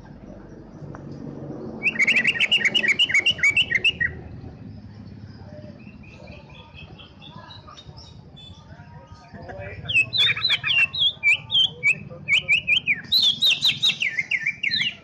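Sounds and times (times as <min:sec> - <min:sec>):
bird chirps: 0:01.7 - 0:15.0
bird singing sharp high notes: 0:01.8 - 0:04.2.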